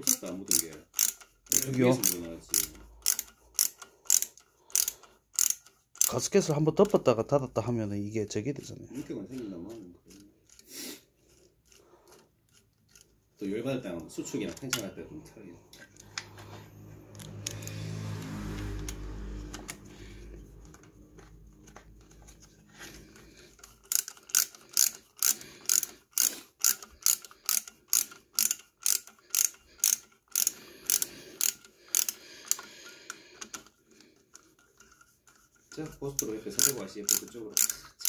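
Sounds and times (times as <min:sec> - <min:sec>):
ratchet wrench clicking: 0:00.0 - 0:07.1, 0:17.1 - 0:33.7, 0:35.7 - 0:38.0.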